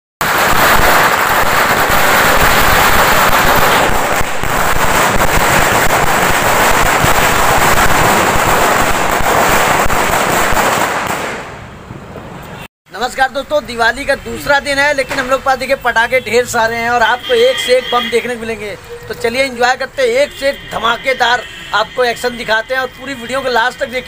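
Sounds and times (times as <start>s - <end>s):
firecracker string crackling: 0.2s - 11.6s.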